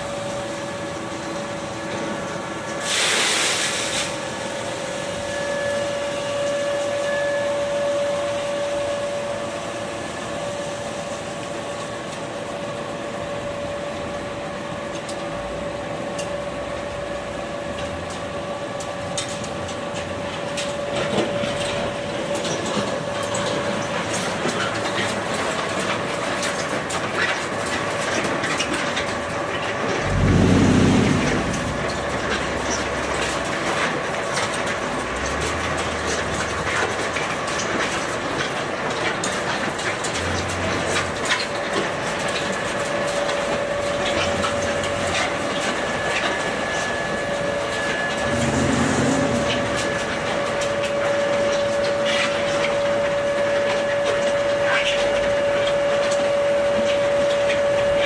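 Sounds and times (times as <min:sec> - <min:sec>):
constant mechanical whine: 0:00.0 - 0:58.0
clattering machinery rumble: 0:17.7 - 0:58.0
brief low rumbles: 0:29.9 - 0:33.4.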